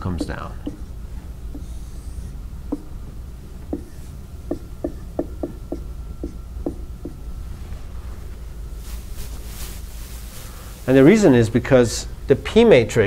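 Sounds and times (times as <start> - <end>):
low room hum: 0.0 - 13.0
marker tapping on whiteboard: 0.2 - 0.9, 1.5 - 7.2.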